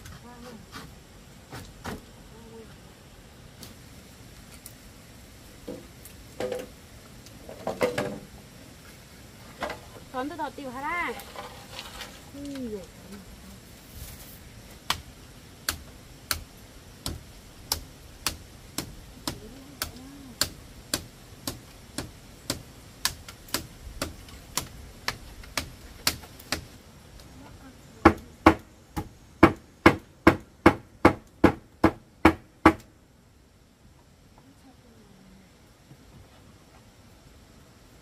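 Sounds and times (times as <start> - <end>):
hammer knocking on bamboo: 17.0 - 26.7, 28.0 - 32.8.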